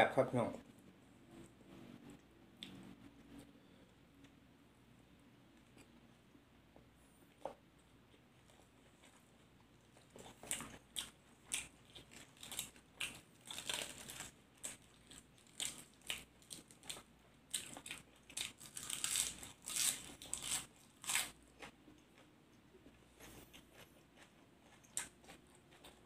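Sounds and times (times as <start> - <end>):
crunchy chewing of raw vegetables: 7.3 - 26.0.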